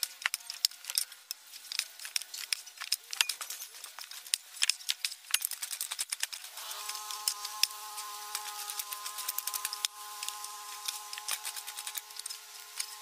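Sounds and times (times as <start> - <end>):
buzzing hum: 6.4 - 13.0.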